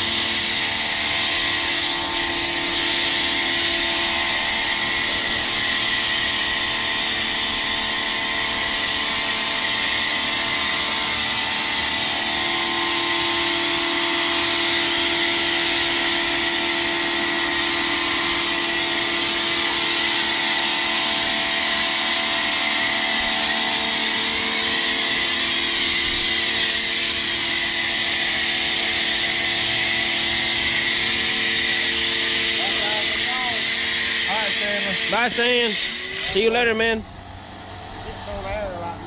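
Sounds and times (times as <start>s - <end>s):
water spray hissing: 0.0s - 6.4s, 7.5s - 13.5s, 17.9s - 24.1s, 25.1s - 36.8s
pressure washer motor humming: 0.0s - 39.0s.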